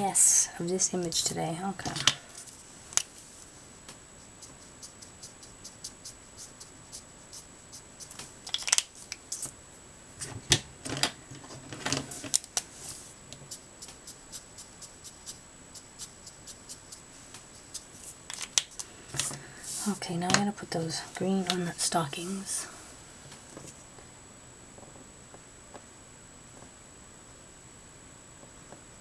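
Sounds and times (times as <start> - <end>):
rustling: 1.8 - 9.6, 10.2 - 24.0
markers clicking and clattering: 8.0 - 9.5, 17.7 - 19.4
faint high whine: 12.0 - 29.0.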